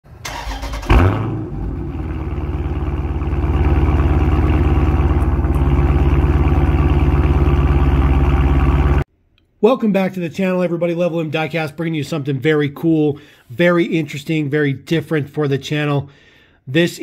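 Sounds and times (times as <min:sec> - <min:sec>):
car engine starting and idling: 0:00.1 - 0:09.1.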